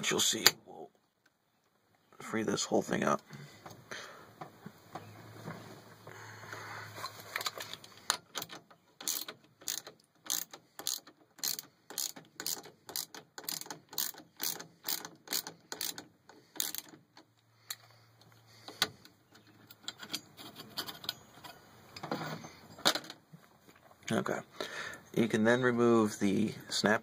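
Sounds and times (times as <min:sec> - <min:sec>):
socket ratchet clicking: 0:08.3 - 0:17.2.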